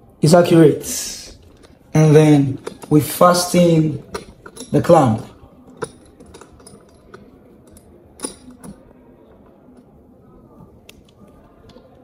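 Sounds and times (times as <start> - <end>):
metal clamp clicking: 2.5 - 9.9.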